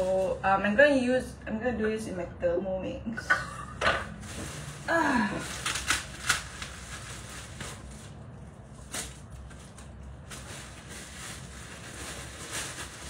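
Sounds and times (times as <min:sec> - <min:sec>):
frozen spinach crackling in bowl: 0:04.0 - 0:13.0.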